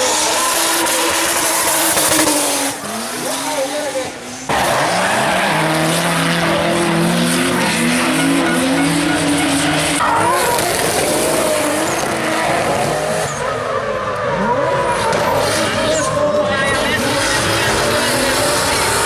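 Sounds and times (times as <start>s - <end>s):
engines at high revs: 0.0s - 19.0s.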